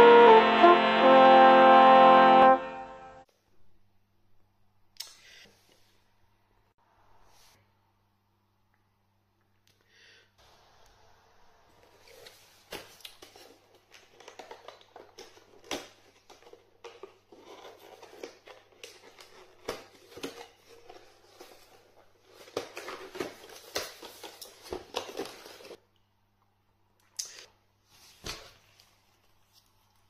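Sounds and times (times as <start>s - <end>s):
objects handled clicking and rustling: 12.1s - 25.8s.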